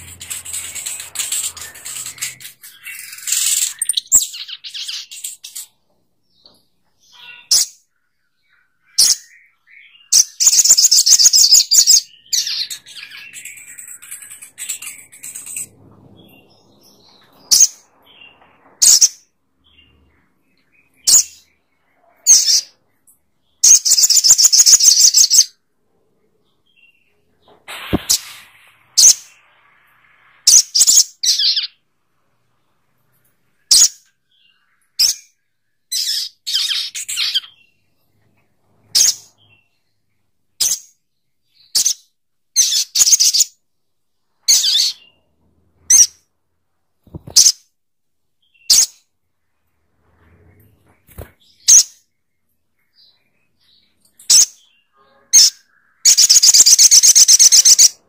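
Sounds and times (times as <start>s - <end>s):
bird rapid trill: 0.0s - 5.7s, 54.3s - 58.0s
bird high sharp chirps: 0.0s - 5.8s, 7.0s - 22.8s, 23.5s - 25.6s, 26.7s - 31.8s, 33.6s - 37.8s, 38.9s - 39.8s, 41.6s - 43.6s, 44.4s - 45.2s, 48.4s - 49.1s, 51.1s - 52.0s, 52.9s - 58.0s.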